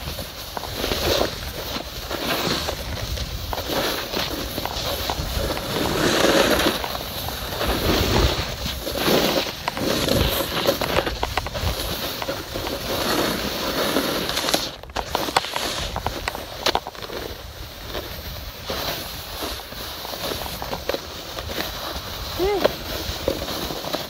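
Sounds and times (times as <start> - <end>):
snowboard scraping over snow: 0.0 - 24.0
low wind rumble: 0.1 - 13.4.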